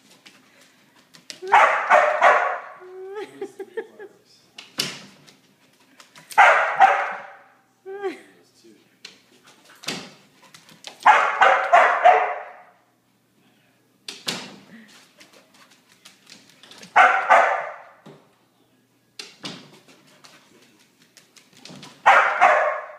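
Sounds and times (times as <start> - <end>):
dog barking: 1.4 - 2.8, 6.3 - 7.6, 11.0 - 12.8, 16.9 - 18.0, 22.0 - 22.9
dog claws clicking on hardwood floor: 4.6 - 6.5, 9.0 - 11.8, 14.9 - 17.2, 19.2 - 22.6.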